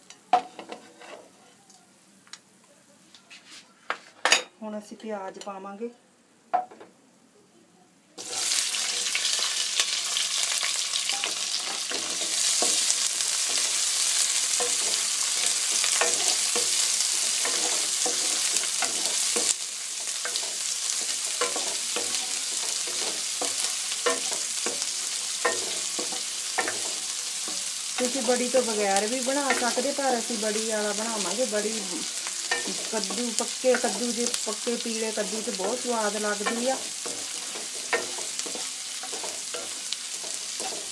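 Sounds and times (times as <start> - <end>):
wooden spatula scraping a pan: 0.4 - 1.5, 35.2 - 40.9
onions sizzling in hot oil: 8.2 - 40.9.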